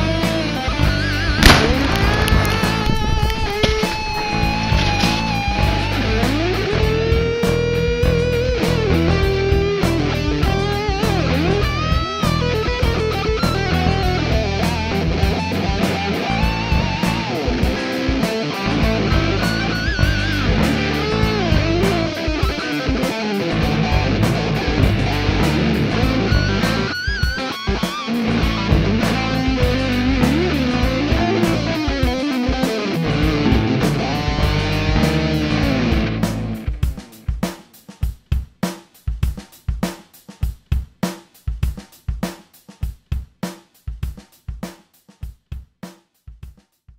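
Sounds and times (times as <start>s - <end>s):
electric guitar lead: 0.0s - 37.0s
steady drum beat: 0.0s - 46.9s.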